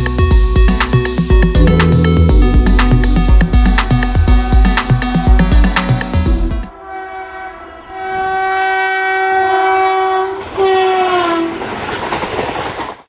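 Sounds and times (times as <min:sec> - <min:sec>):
train air horn blasts: 0:01.6 - 0:11.5.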